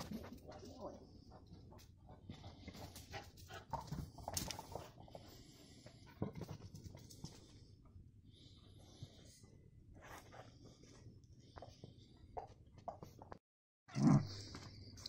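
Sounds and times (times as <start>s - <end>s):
dog panting: 0.0s - 7.7s.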